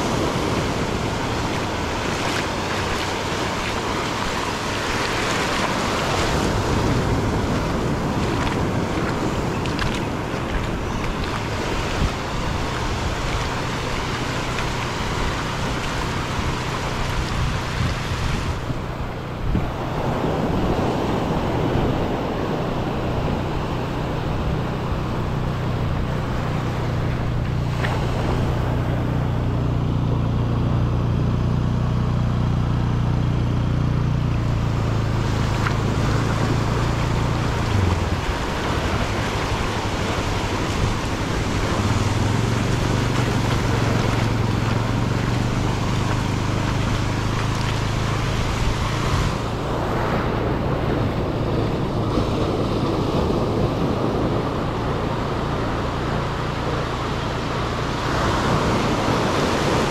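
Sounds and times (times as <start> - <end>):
ocean surf washing over sand: 0.0 - 59.9.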